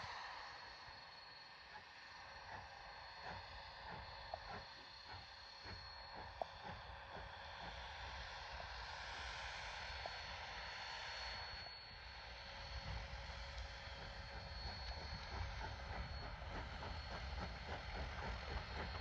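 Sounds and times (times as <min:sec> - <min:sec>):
steam locomotive chuffing: 0:02.2 - 0:19.0.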